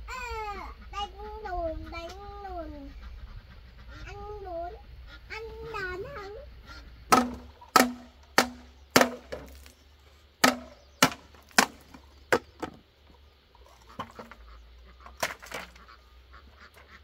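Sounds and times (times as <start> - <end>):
bamboo pole knocking into ground: 7.1 - 9.8, 10.4 - 12.8.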